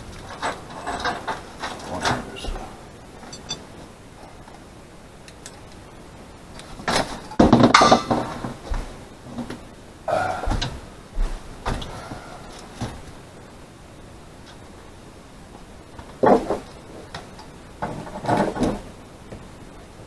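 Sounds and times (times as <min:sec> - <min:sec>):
objects knocking and clattering: 0:06.8 - 0:08.6, 0:16.1 - 0:16.7.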